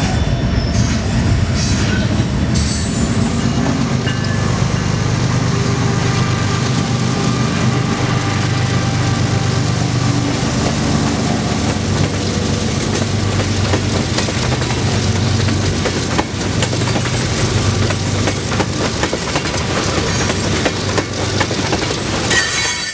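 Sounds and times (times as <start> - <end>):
train wheels clattering on rails: 0.0 - 5.2, 10.0 - 22.9
diesel locomotive engines humming: 0.0 - 22.7.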